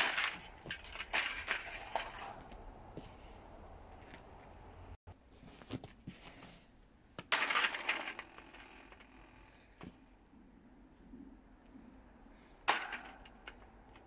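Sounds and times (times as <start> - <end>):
plastic fan parts crunching clatter: 0.0 - 2.6, 7.2 - 10.0, 12.6 - 14.0.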